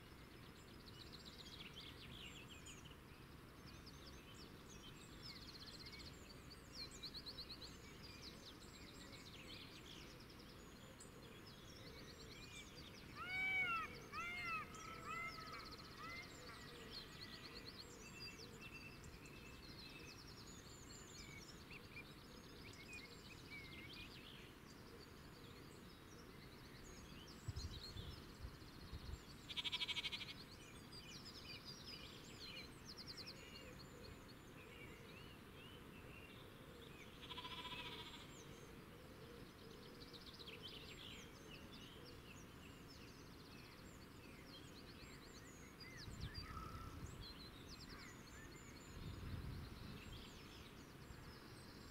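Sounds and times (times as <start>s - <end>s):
small birds chirping: 0.4s - 51.9s
animal calls: 29.5s - 30.2s, 37.2s - 38.3s.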